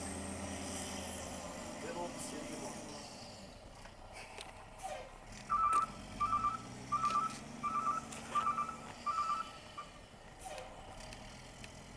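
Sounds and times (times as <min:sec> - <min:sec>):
truck engine running: 0:00.0 - 0:11.9
reversing alarm beeping: 0:05.5 - 0:09.9.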